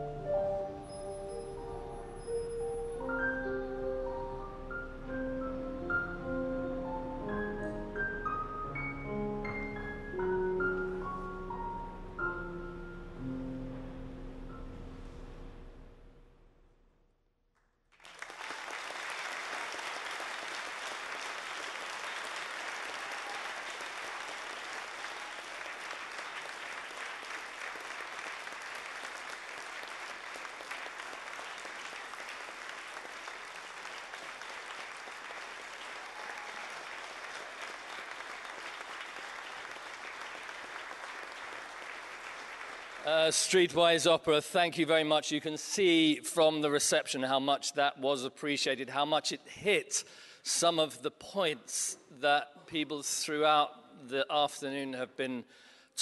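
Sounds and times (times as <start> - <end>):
music: 0.0 - 17.1
audience applause: 17.9 - 43.7.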